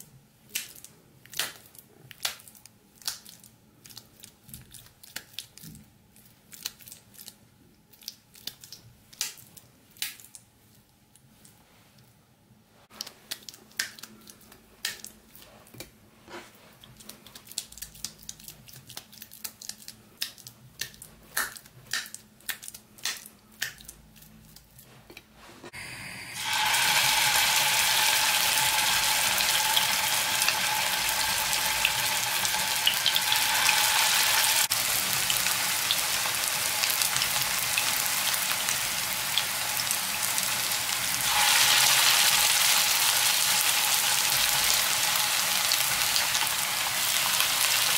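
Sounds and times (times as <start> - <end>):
meatballs sizzling in oil: 25.7 - 47.9.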